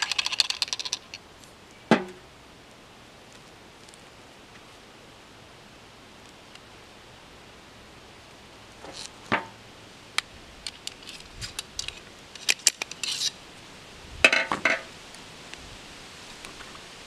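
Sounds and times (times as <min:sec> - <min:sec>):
metal and wood clinks and scrapes: 0:10.6 - 0:13.4.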